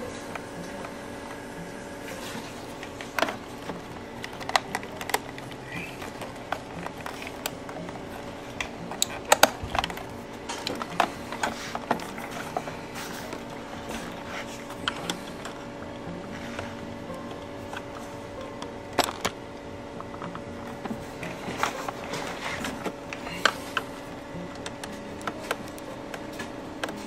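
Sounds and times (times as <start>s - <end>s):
steady background hum: 0.0s - 27.0s
screwdriver tapping plastic casing: 3.2s - 12.6s.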